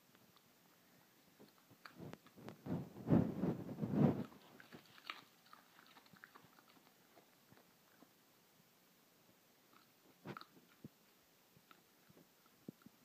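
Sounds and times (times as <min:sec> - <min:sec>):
dog crunching carrots: 0:04.1 - 0:08.2, 0:09.7 - 0:13.0.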